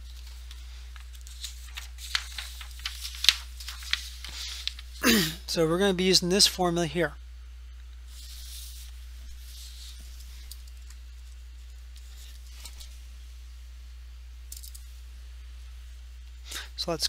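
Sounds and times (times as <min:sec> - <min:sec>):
paper rustling: 0:00.0 - 0:05.0, 0:08.1 - 0:11.4, 0:12.0 - 0:13.0
low electrical hum: 0:00.0 - 0:17.0.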